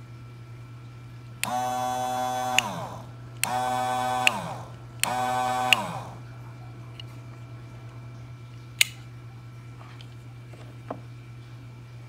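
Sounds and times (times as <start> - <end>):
rocker switch clicking: 1.4 - 1.8, 2.4 - 6.1
pump motor whining: 1.4 - 7.0.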